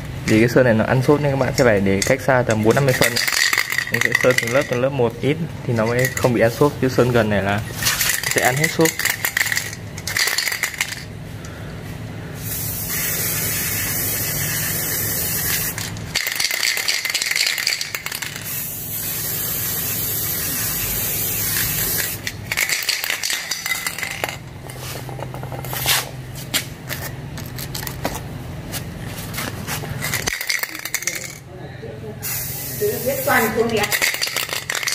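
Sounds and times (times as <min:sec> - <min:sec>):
clicks and rattles: 0:01.4 - 0:04.8, 0:08.0 - 0:11.1, 0:30.0 - 0:31.4, 0:33.6 - 0:34.9
spray paint can hissing: 0:02.9 - 0:04.8, 0:07.8 - 0:11.1, 0:12.4 - 0:25.0, 0:30.0 - 0:31.4, 0:32.2 - 0:34.9.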